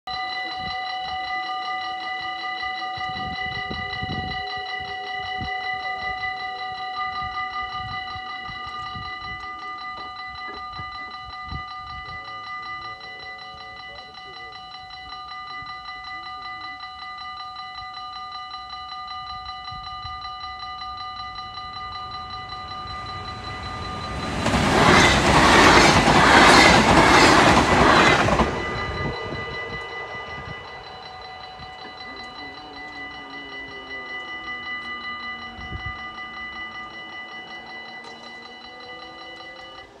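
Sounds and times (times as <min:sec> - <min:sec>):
level crossing warning bell: 0:00.1 - 0:40.0
train rushing past: 0:21.2 - 0:39.5.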